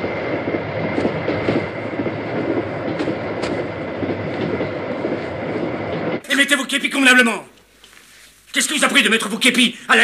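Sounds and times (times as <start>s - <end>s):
train rumbling and rattling: 0.0s - 6.4s.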